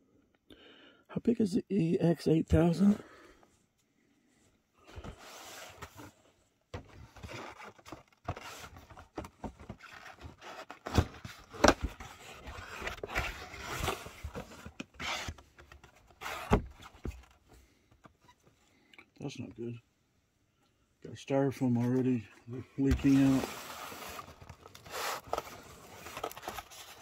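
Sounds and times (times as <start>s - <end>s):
cardboard scraping and rustling: 4.9s - 6.2s, 6.8s - 17.2s, 22.8s - 27.0s.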